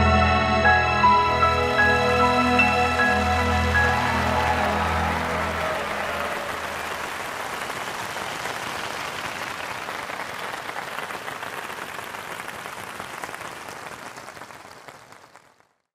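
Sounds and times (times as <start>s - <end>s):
orchestra chord: 0.0s - 7.1s
audience applause: 1.3s - 15.9s.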